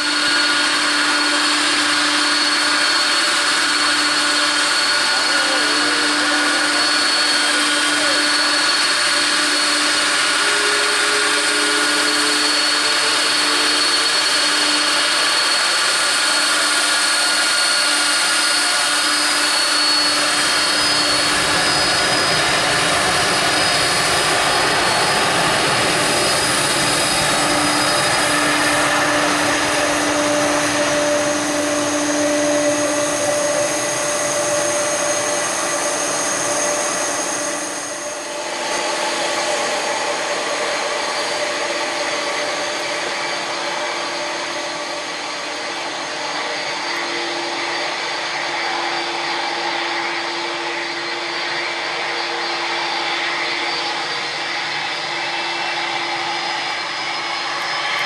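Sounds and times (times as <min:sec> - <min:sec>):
jet engines at takeoff thrust: 0:00.0 - 0:58.0.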